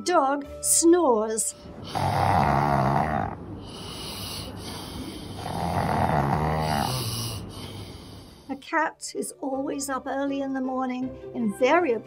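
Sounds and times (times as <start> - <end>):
person snoring: 1.8 - 8.5.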